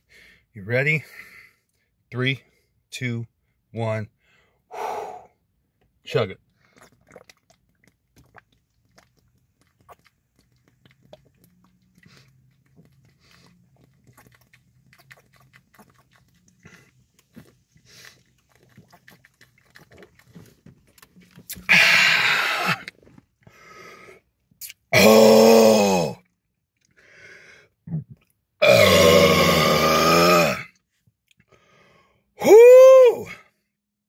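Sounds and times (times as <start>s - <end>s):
man gasping: 4.2s - 5.4s
gulping and swallowing: 6.4s - 23.6s, 27.8s - 30.6s.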